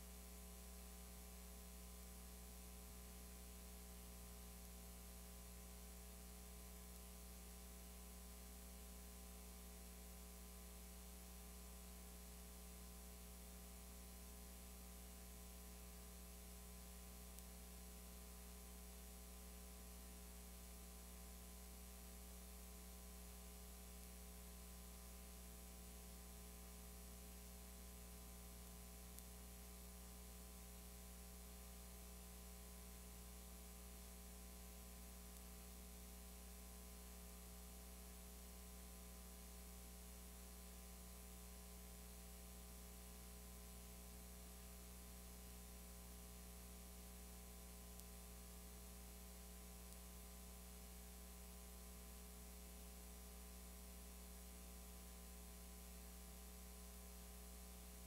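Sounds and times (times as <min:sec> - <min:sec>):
electrical mains hum: 0:00.0 - 0:58.0
recording hiss: 0:00.0 - 0:58.0
faint tick: 0:17.3 - 0:17.6, 0:23.9 - 0:24.2, 0:28.6 - 0:29.4, 0:47.8 - 0:48.3, 0:49.8 - 0:50.5.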